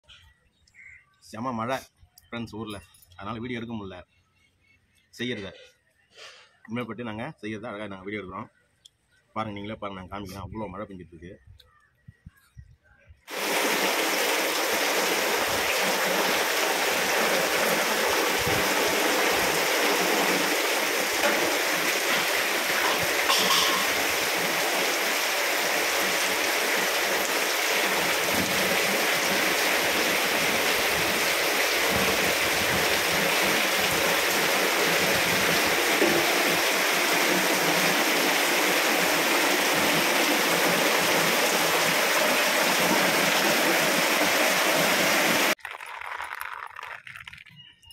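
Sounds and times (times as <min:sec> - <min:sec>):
heavy rain pouring: 0:13.3 - 0:46.9.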